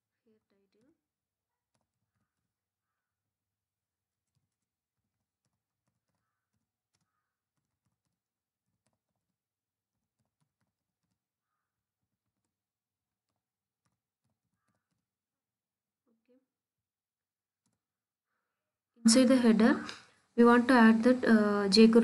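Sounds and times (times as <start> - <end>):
faint keyboard typing: 1.6 - 3.1, 4.2 - 15.1, 17.6 - 17.9.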